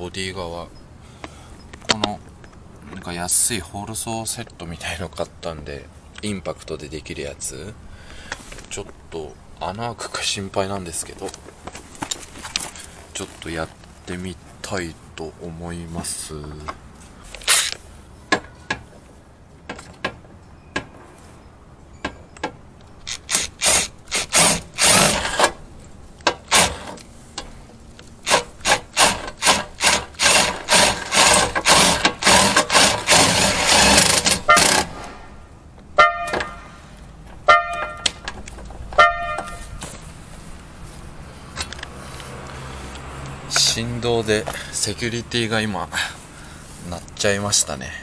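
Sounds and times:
impact driver hammering: 26.3s - 27.0s, 28.2s - 34.9s
car alarm tone blasts: 36.0s - 36.6s, 37.5s - 38.1s, 39.0s - 39.6s.

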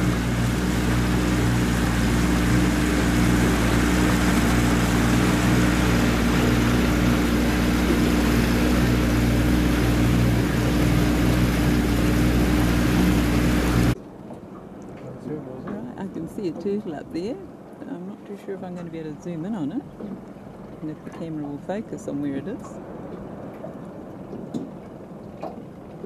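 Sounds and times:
water rushing: 0.0s - 14.0s
boat engine humming: 0.0s - 26.0s.

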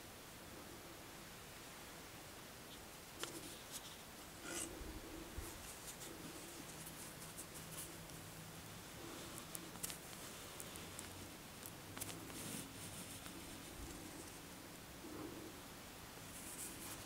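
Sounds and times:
steady hiss: 0.0s - 17.0s
soft clicks and rustles: 2.7s - 14.5s.

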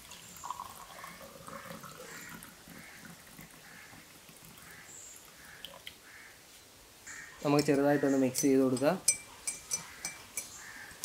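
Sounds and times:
tea trickling into glass: 0.0s - 3.6s, 7.4s - 11.0s.

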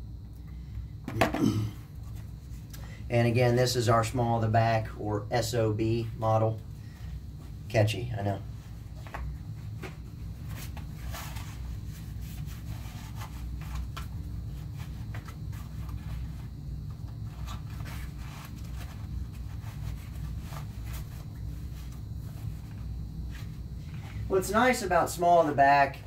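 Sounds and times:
steady low hum: 0.0s - 26.0s
clothing rustling: 8.5s - 24.7s.

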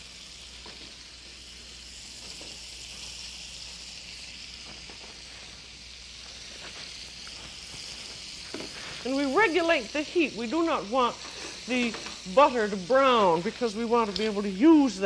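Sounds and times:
steaks sizzling in a frying pan: 0.0s - 15.0s.

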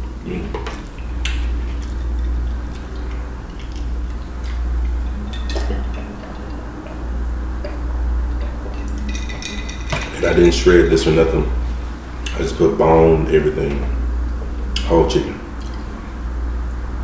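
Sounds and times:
steady low hum: 0.0s - 17.0s
drinking from glass jar: 1.5s - 10.6s.

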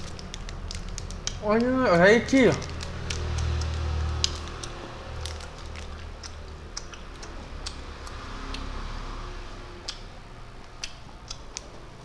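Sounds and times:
plastic bags crinkling: 0.0s - 1.7s, 2.3s - 6.1s.

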